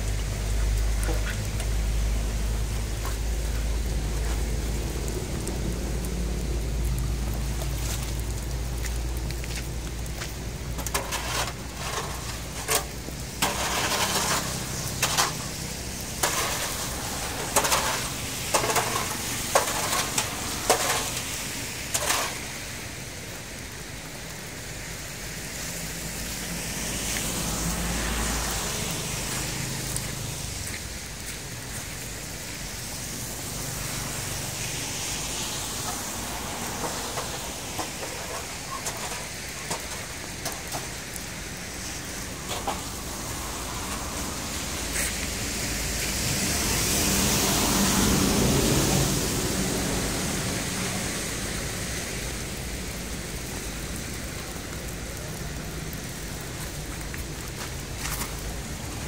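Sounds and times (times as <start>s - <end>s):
rainwater rushing out of a culvert: 0.0s - 59.0s
hoe scraping and knocking: 9.4s - 22.6s, 35.8s - 41.0s, 42.5s - 43.2s.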